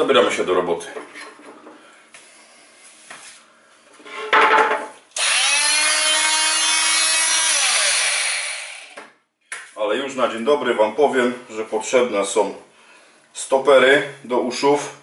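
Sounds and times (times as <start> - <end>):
oscillating multi-tool running: 5.2 - 9.0.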